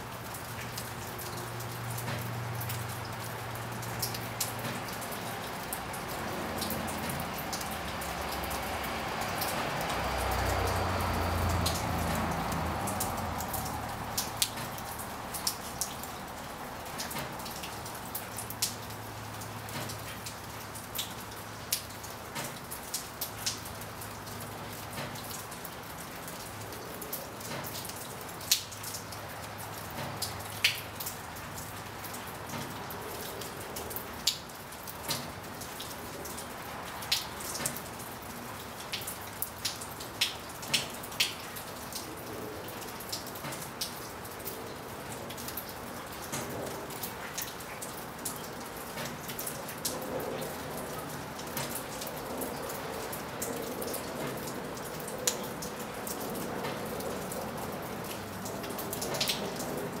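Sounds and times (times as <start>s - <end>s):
steady rain: 0.0s - 60.0s.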